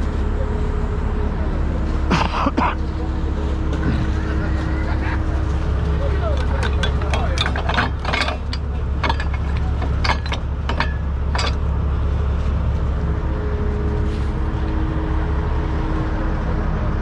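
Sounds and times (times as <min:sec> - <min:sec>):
truck diesel engine idling: 0:00.0 - 0:17.0
metal rigging clinking: 0:06.1 - 0:11.8.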